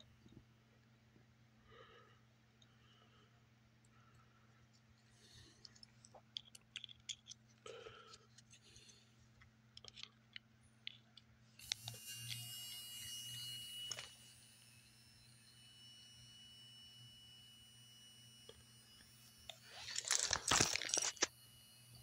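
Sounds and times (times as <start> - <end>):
low electrical hum: 0.0 - 22.0
amplifier hiss and high whine: 11.9 - 22.0.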